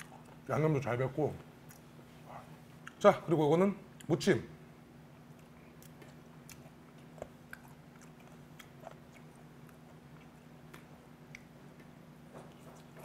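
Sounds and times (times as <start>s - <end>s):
steady low hum: 0.0s - 13.0s
chewing mouth clicks: 5.4s - 11.9s.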